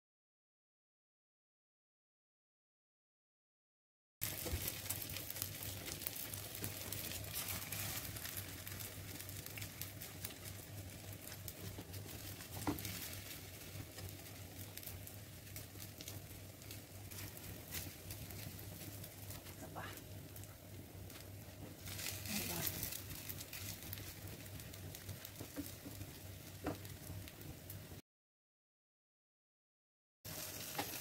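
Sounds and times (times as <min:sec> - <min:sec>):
food sizzling in oil: 0:04.2 - 0:27.8, 0:30.3 - 0:31.0.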